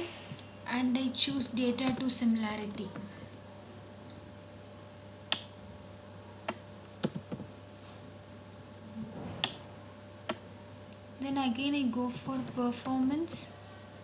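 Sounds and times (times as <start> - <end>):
computer keys and mouse clicking: 1.8 - 3.1, 5.3 - 5.5, 6.4 - 7.5, 9.4 - 9.6.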